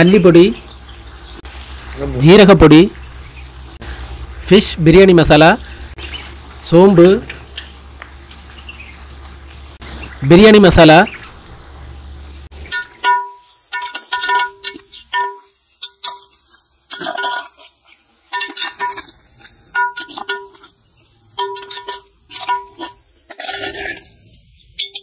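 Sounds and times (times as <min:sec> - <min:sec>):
pot ringing from knocks: 0:12.7 - 0:16.3, 0:19.7 - 0:20.6, 0:21.4 - 0:22.9
metal ladle scraping in a pot: 0:21.4 - 0:24.2.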